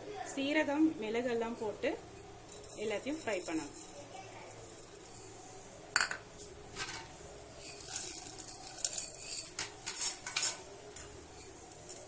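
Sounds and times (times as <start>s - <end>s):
bowl and utensil clinking on pot: 2.4s - 4.1s.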